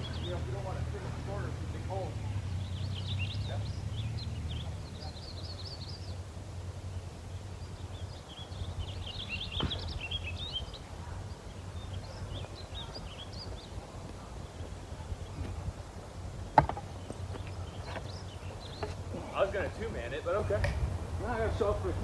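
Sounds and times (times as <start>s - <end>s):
small birds chirping: 0.0s - 22.0s.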